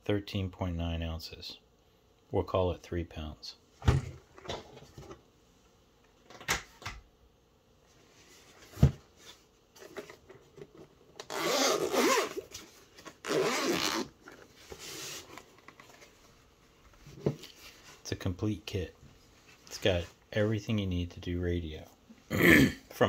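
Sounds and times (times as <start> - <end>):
zipper being pulled open: 11.2 - 12.5, 13.2 - 14.1.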